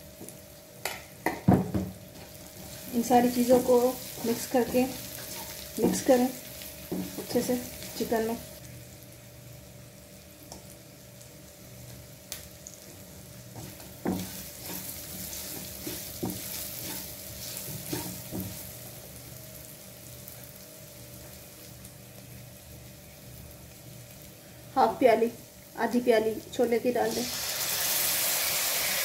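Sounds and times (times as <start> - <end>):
food sizzling in oil: 0.0 - 29.0
spatula scraping a pan: 13.6 - 18.4.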